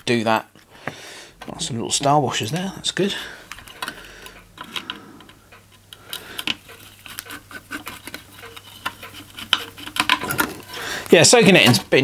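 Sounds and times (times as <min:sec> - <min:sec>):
screwdriver clicking and scraping metal: 0:03.5 - 0:12.0.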